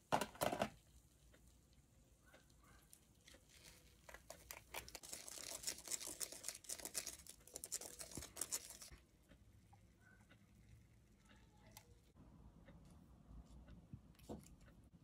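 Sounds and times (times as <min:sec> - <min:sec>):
rapid crackling of candy packaging: 0:02.9 - 0:08.9.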